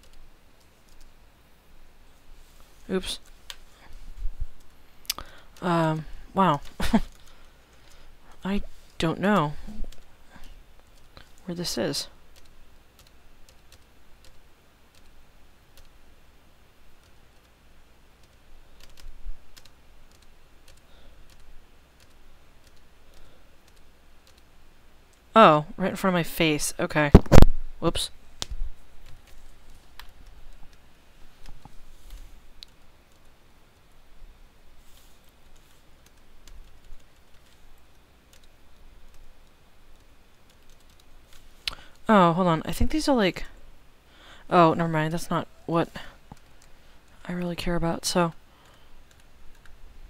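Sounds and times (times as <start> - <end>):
keyboard keys clicking: 18.2 - 24.5.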